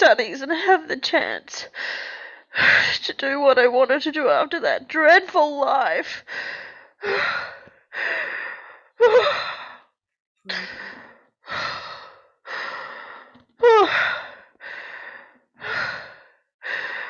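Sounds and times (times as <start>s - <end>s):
woman crying: 9.0s - 9.7s, 13.6s - 14.1s.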